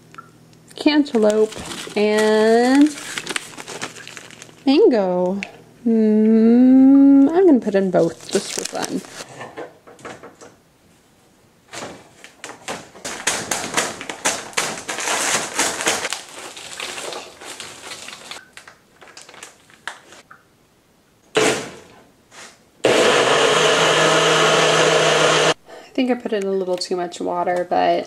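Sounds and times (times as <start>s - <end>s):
plastic bag crinkling: 1.1s - 4.9s, 8.0s - 9.3s, 12.2s - 20.2s
blender running: 22.8s - 25.6s.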